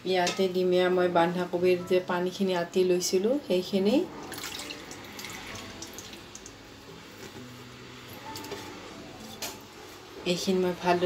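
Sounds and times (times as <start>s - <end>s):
liquid pouring and splashing: 4.2s - 6.7s.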